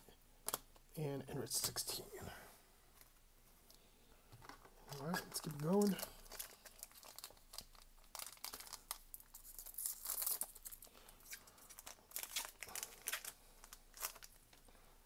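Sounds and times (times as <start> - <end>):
foil pack tearing and crinkling: 5.0 - 10.9, 11.7 - 14.4.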